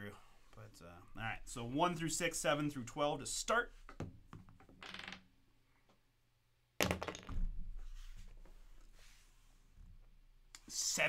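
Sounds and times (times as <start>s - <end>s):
die clattering on table: 6.8s - 7.5s.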